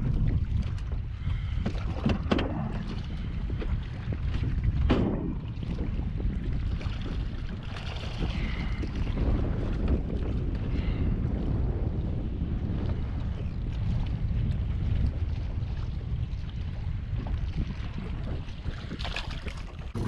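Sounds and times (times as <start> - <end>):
knocks and handling in boat: 0.0 - 10.4
water lapping at boat: 0.0 - 20.0
wind buffeting microphone: 0.0 - 20.0.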